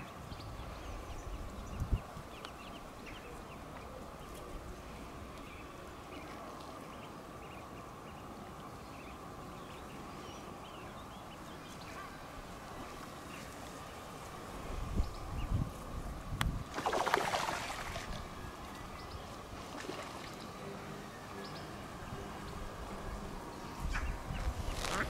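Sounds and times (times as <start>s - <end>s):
ducklings peeping: 23.8s - 25.0s.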